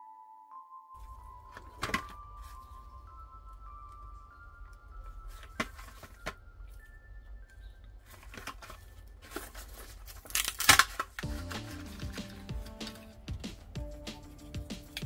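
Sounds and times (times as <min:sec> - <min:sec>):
plastic packaging clicks and crinkles: 0:07.6 - 0:13.0
plastic and card tearing: 0:08.1 - 0:13.1.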